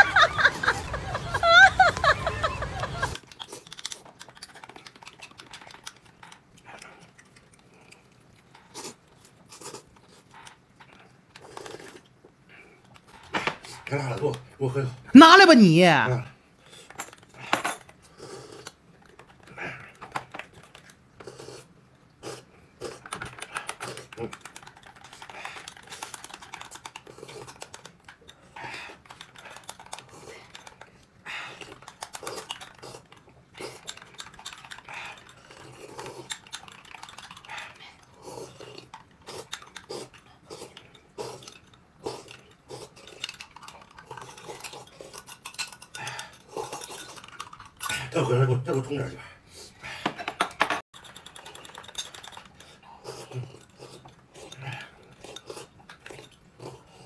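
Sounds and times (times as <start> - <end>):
small objects clicking and rustling: 3.2 - 6.5, 50.6 - 52.8.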